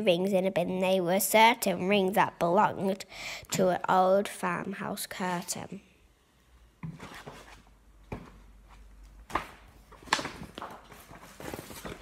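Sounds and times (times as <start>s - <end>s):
book pages turning: 6.8s - 12.0s.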